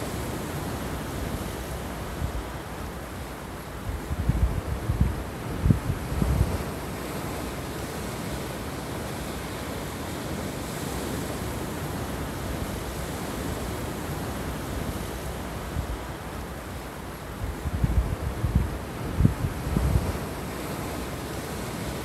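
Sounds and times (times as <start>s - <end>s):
wind buffeting microphone: 3.8s - 9.6s, 17.3s - 22.0s.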